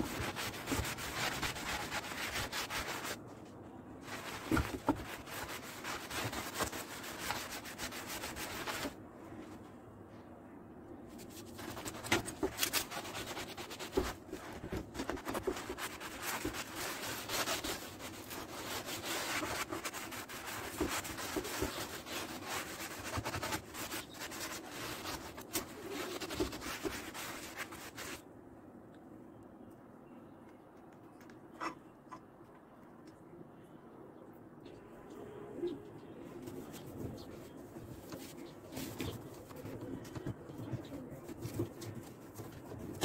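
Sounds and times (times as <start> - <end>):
sponge scrubbing wood: 0.0 - 3.2, 4.0 - 9.0, 11.3 - 28.2.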